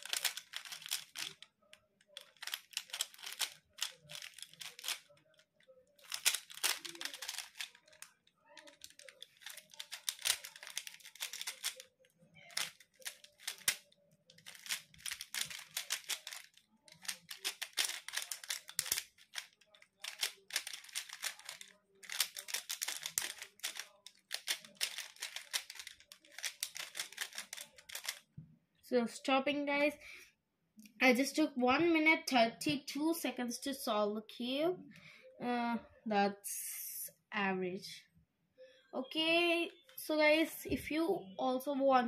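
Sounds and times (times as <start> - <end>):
plastic cube clicking and rattling: 0.0 - 5.4, 6.0 - 28.2.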